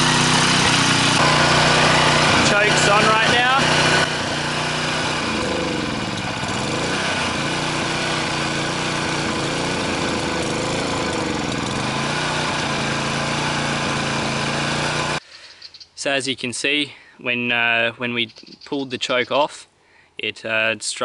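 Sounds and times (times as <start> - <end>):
mower engine hunting idle: 0.0 - 15.2.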